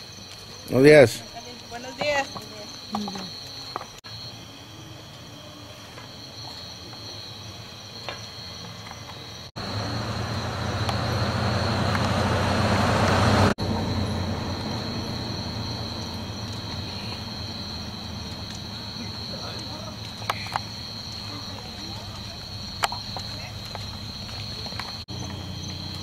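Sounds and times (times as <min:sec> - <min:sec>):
insects buzzing: 0:00.0 - 0:26.0
vehicle engine and road noise: 0:08.8 - 0:26.0.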